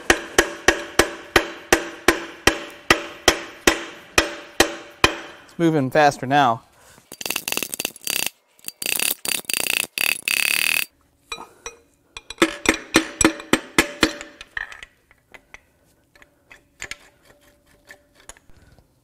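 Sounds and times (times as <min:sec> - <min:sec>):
ratchet wrench clicking: 0:07.1 - 0:10.9.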